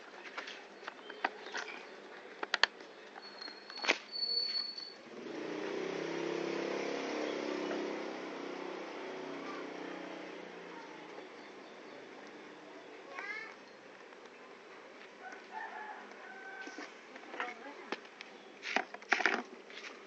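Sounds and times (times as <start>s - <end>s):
motorcycle engine running: 5.0s - 12.6s
plastic parts and tools clicking: 18.7s - 19.5s.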